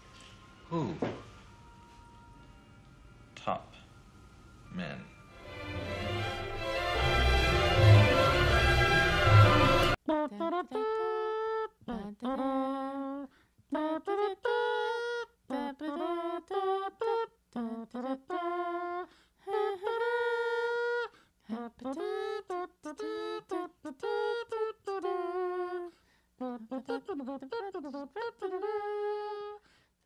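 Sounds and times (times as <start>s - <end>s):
person humming a melody: 10.1s - 29.6s.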